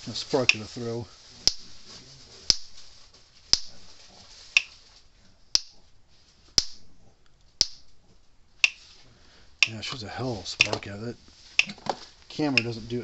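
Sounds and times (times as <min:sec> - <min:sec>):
electric fence spark snaps: 0:02.5 - 0:02.9.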